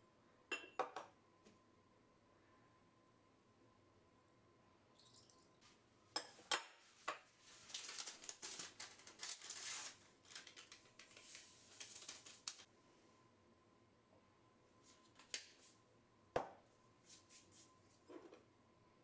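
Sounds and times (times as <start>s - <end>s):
kitchen things tapping and clicking: 0.5s - 1.2s, 6.2s - 7.3s
paper sachet rustling: 7.4s - 12.7s.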